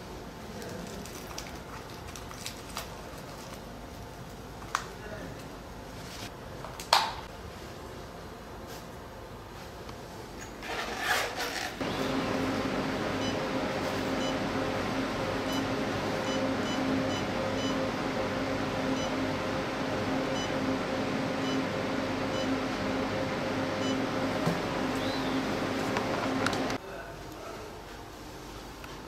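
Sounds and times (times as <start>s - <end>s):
machine electrical hum: 0.0s - 29.0s.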